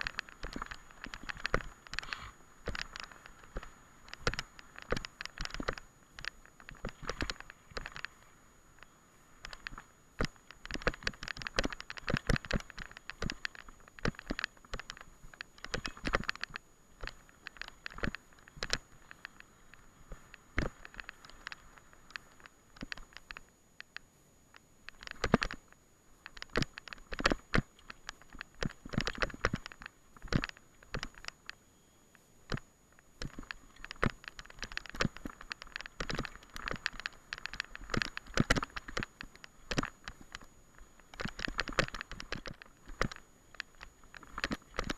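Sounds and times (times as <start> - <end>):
mountain bike rattling and knocking: 0.0 - 8.2, 8.8 - 19.5, 26.2 - 31.6, 33.2 - 44.9.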